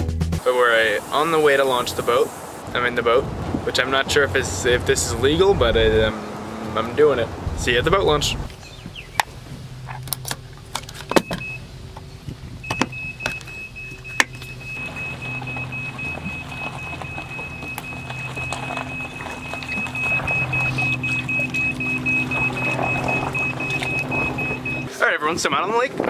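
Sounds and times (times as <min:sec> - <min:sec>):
vehicle engine running: 0:02.6 - 0:25.0
rapid pulsing electronic beep: 0:12.7 - 0:24.9.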